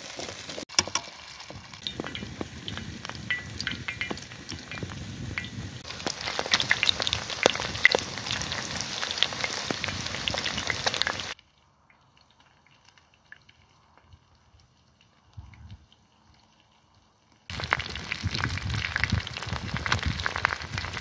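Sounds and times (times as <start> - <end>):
chicken sizzling in hot oil: 0.0 - 11.4, 17.4 - 21.0
oil popping: 0.1 - 11.4.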